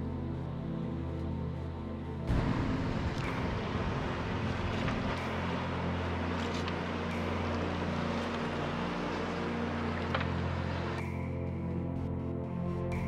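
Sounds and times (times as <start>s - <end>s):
boat motor hum: 0.1s - 13.0s
wind noise: 2.3s - 6.0s
water rushing: 2.3s - 11.0s.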